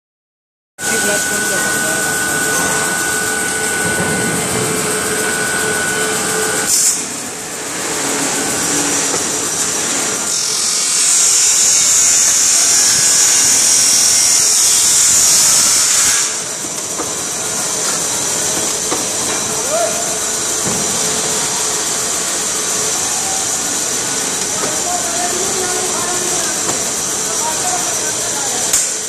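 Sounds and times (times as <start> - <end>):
lathe machine tones: 0.8 - 29.0
loud high hiss: 4.6 - 29.0.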